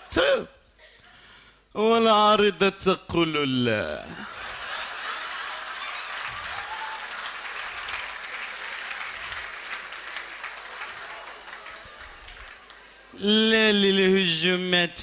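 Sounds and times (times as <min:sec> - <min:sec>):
audience applauding: 0:04.6 - 0:13.2.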